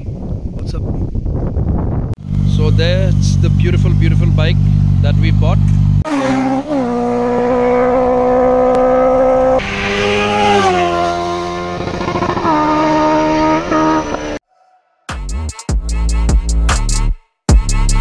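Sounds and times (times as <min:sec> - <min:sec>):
motorcycle engine at high revs: 0:02.2 - 0:14.4.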